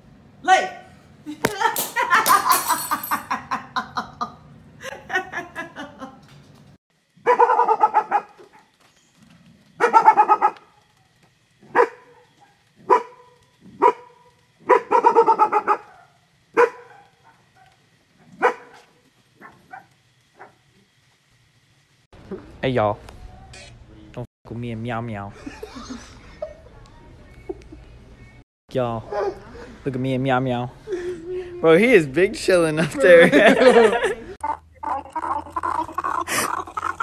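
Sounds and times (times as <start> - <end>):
dog barking rapidly: 7.2 - 8.7, 9.8 - 10.7, 11.6 - 17.7, 18.4 - 20.6.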